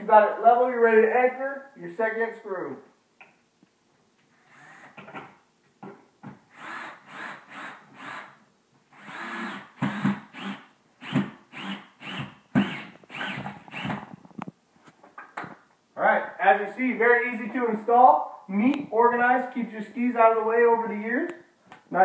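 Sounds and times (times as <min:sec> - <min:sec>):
cordless drill driving screw: 0:04.4 - 0:05.0, 0:06.5 - 0:08.4, 0:09.0 - 0:14.1.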